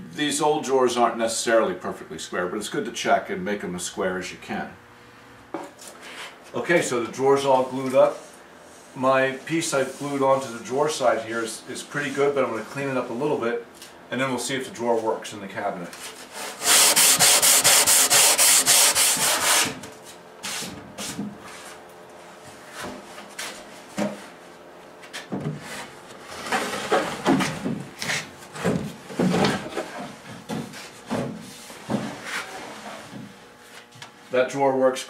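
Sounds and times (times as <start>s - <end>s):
hand-sanding wood: 15.9s - 21.8s, 29.8s - 33.1s.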